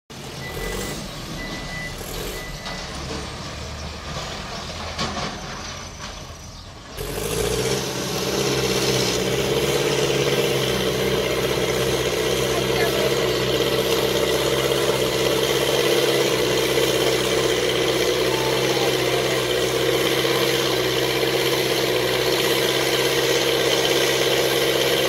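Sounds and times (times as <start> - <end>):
diesel engine under load: 0.1 - 25.0
backing-up beep: 0.4 - 3.2, 18.0 - 20.8.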